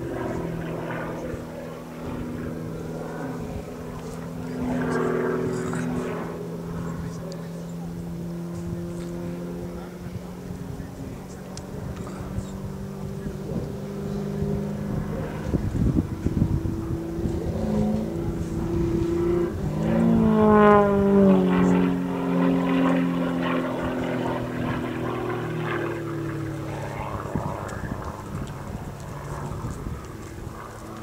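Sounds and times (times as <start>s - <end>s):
propeller plane engine droning: 0.0s - 31.0s.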